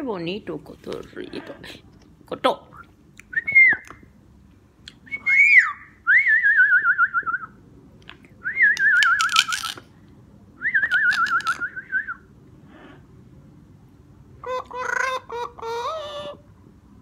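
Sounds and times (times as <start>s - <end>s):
warbling whistling: 5.1s - 7.6s.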